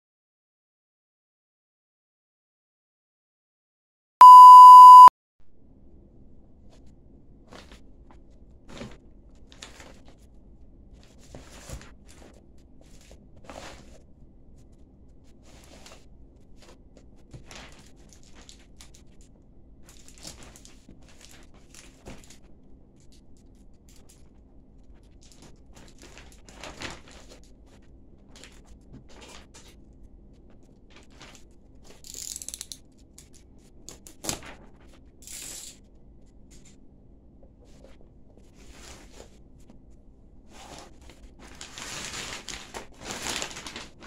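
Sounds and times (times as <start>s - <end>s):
plastic bag rustling and crinkling: 7.5s - 10.4s, 15.4s - 19.2s, 19.8s - 22.5s, 24.8s - 29.9s, 30.5s - 32.0s, 40.4s - 44.0s.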